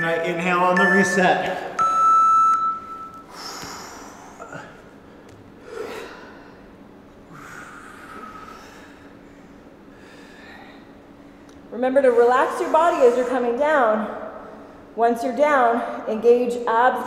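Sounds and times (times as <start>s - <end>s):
people breathing: 3.2s - 15.0s.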